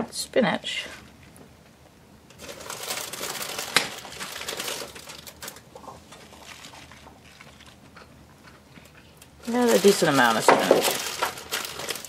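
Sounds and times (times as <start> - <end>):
spinach leaves rustling in a pan: 2.4 - 7.8, 9.4 - 12.0.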